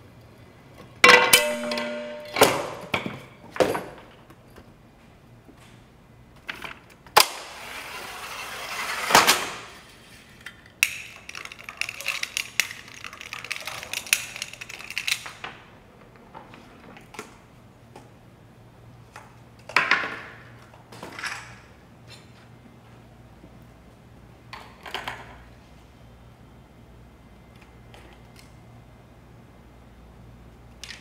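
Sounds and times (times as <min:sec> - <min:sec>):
clicks and knocks of parts: 0:10.3 - 0:18.1, 0:30.8 - 0:31.0.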